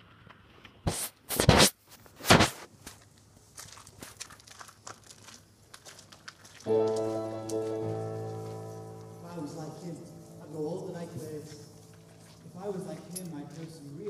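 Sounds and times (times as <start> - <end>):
rustling and crinkling: 0.0 - 9.2.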